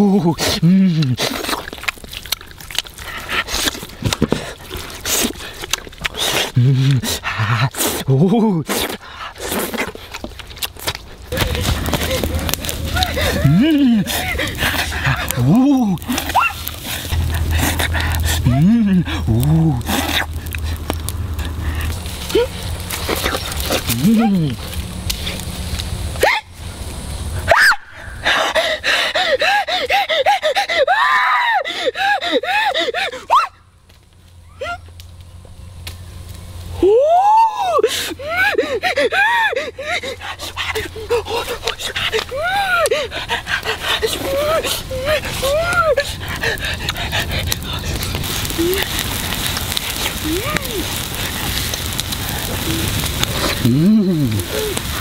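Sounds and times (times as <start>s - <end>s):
man making strained cries: 12.0s - 16.2s, 18.2s - 19.9s, 36.8s - 40.2s, 52.5s - 54.9s
man humming or groaning: 12.9s - 14.2s, 15.1s - 16.2s, 17.2s - 20.0s, 23.8s - 24.7s, 52.5s - 54.8s.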